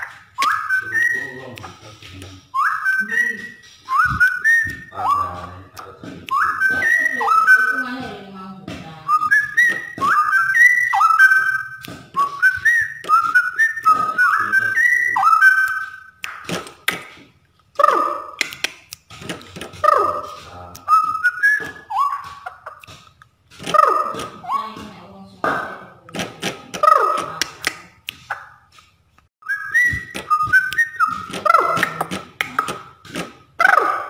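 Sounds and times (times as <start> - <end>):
bird singing whistled phrases: 0.0 - 8.2, 8.9 - 16.4, 19.8 - 22.9, 23.7 - 24.9, 29.4 - 32.1.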